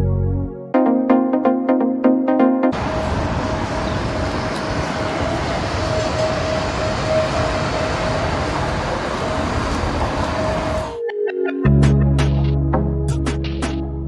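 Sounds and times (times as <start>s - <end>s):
street noise roar: 2.7s - 12.6s.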